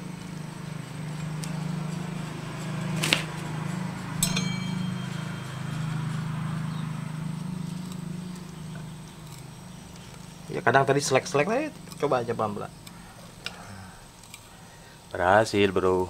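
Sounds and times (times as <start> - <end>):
steady low hum: 0.0 - 16.0
sharp metallic clinks: 0.6 - 14.5.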